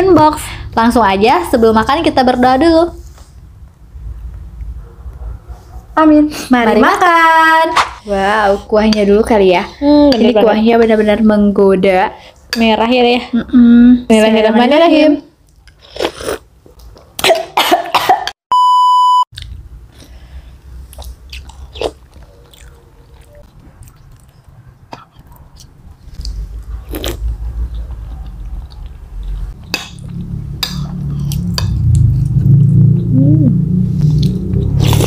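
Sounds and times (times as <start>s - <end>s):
person coughing: 17.2s - 18.4s
high beep tone: 18.5s - 19.3s
chewing and slurping: 20.8s - 33.1s, 34.0s - 35.0s
low rumble: 26.2s - 35.0s.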